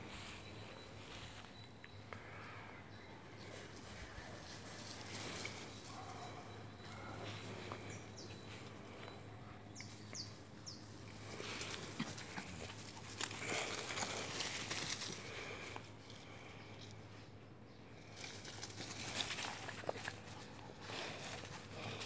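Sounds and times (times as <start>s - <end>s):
rustling in dry leaves: 3.4s - 9.0s, 9.9s - 16.6s, 18.0s - 22.0s.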